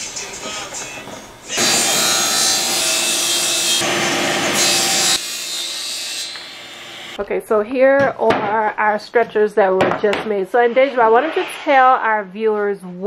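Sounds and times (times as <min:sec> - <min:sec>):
table saw cutting wood: 0:01.5 - 0:07.2.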